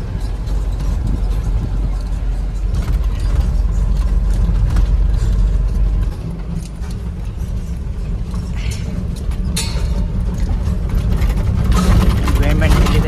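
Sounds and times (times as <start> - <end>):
cab fittings rattling and knocking: 0.0 - 13.0
truck engine and road rumble: 0.0 - 13.0.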